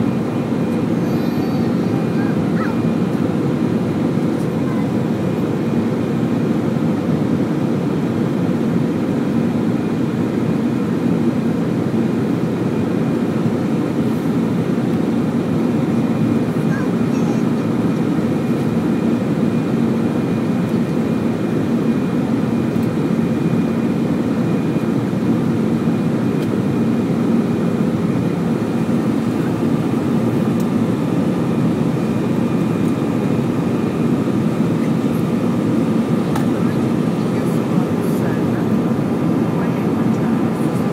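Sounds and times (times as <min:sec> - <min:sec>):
airplane cabin engine drone: 0:00.0 - 0:40.9.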